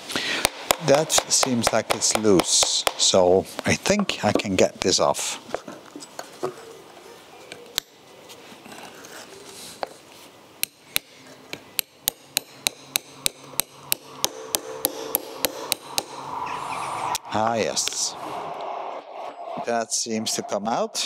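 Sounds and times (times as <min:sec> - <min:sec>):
hammer tapping metal: 0:00.4 - 0:03.2, 0:10.6 - 0:16.2.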